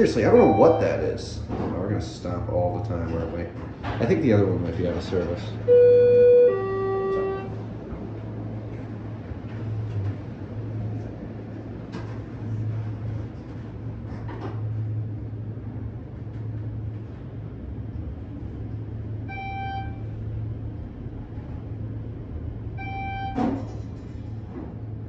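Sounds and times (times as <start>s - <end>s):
elevator humming: 0.0s - 25.0s
electronic elevator chime: 0.2s - 1.2s, 5.7s - 7.5s.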